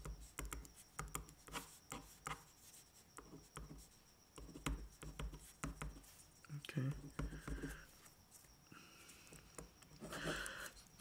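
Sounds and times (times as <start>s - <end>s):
pen scratching on paper: 0.0s - 6.3s.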